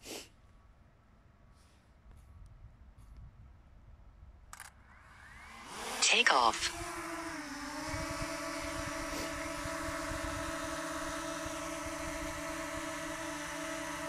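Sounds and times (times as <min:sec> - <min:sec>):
drone propellers whining hum: 0:04.6 - 0:14.0.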